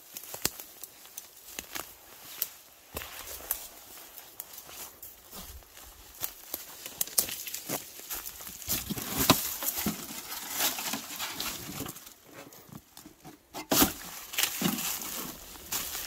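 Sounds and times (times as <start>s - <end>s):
footsteps crunching through dry leaves: 0.0s - 13.0s, 13.7s - 16.0s
rustling and scraping of steel plate: 8.7s - 16.0s.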